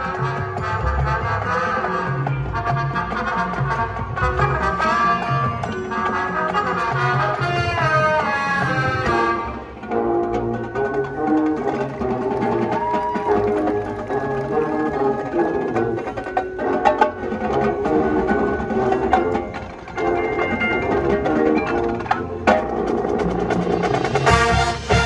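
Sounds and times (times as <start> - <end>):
marching band playing: 0.0 - 25.0.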